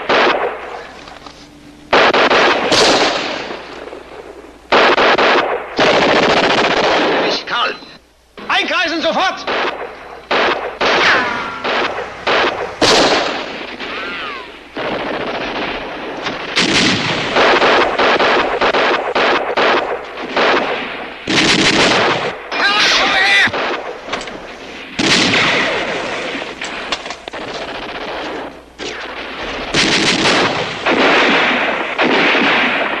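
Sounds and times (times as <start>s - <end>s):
single gunshots: 0.0s - 1.2s, 1.9s - 7.7s, 9.2s - 22.6s, 23.3s - 33.0s
automatic gunfire bursts: 1.9s - 7.4s, 9.4s - 22.4s, 25.0s - 33.0s.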